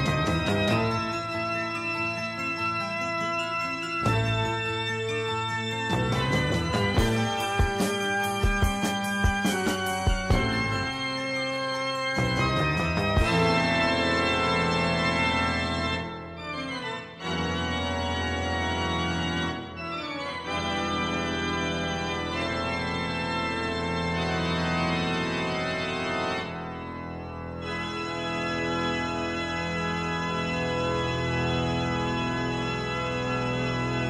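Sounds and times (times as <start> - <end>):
organ-like keyboard chords: 0.0 - 34.0.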